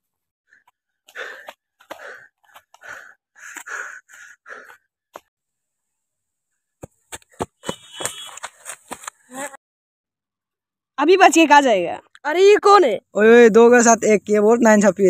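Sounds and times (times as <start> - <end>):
running footsteps on dry leaves: 0.5 - 5.3, 6.8 - 9.5
short rasping breathy sounds: 0.5 - 5.3.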